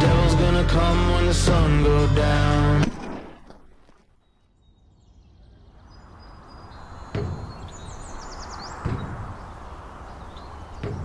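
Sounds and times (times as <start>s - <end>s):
high bird chirps: 4.2s - 11.0s
boots on steel ladder steps: 7.2s - 7.7s, 8.8s - 9.4s, 10.8s - 11.0s.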